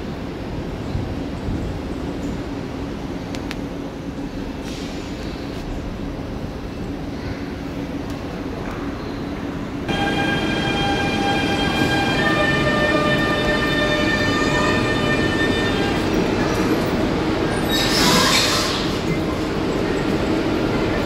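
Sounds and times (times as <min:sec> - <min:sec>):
train rumbling: 0:00.0 - 0:21.0
high squeal: 0:17.5 - 0:19.0.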